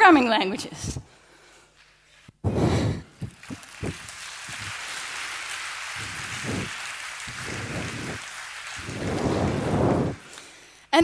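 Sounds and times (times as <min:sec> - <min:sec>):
audience applauding: 0:02.8 - 0:10.7.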